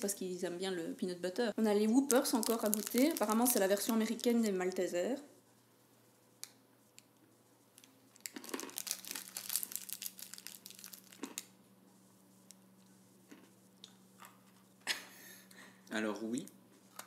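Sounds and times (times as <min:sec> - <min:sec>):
candy wrapper crinkling: 0:01.8 - 0:04.8, 0:07.8 - 0:11.6.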